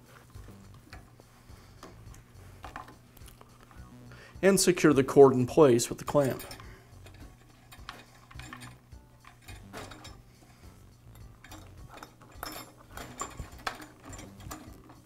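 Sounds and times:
wires brushing metal housing: 0:06.0 - 0:15.0.

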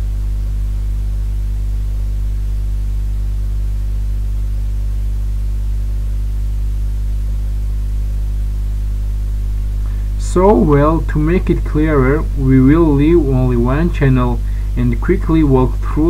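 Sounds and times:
electrical mains hum: 0:00.0 - 0:16.0
faint hiss: 0:09.7 - 0:16.0.

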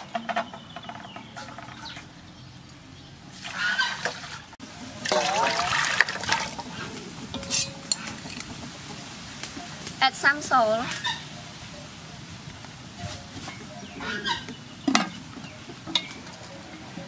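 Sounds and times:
water splashing over shells: 0:03.4 - 0:06.9.

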